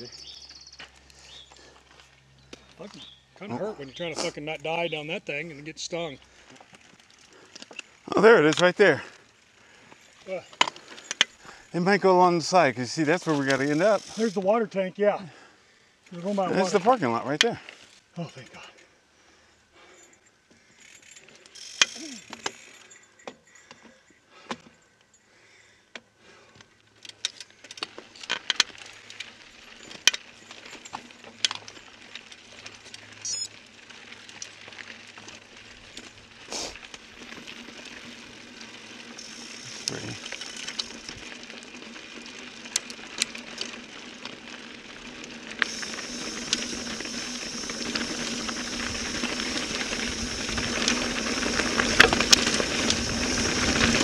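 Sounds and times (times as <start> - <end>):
bike rattling on loose stones: 3.8 - 15.2, 16.1 - 18.8, 19.8 - 24.8, 26.4 - 54.0
tyre and wind rush: 46.0 - 54.0.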